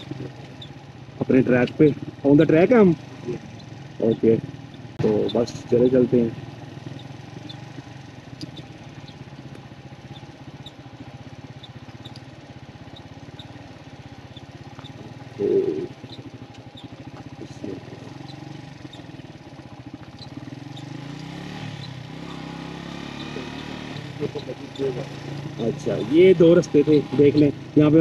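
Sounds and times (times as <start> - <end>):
motorcycle engine running: 0.0 - 28.0.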